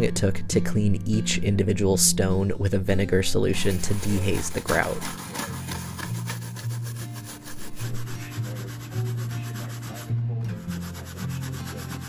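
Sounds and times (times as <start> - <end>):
toothbrush scrubbing plastic panels: 3.6 - 10.1, 10.7 - 12.0.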